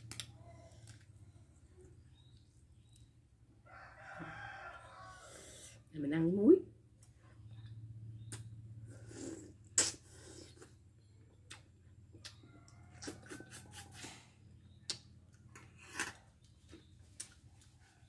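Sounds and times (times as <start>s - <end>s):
wet chewing mouth clicks: 11.5s - 13.9s.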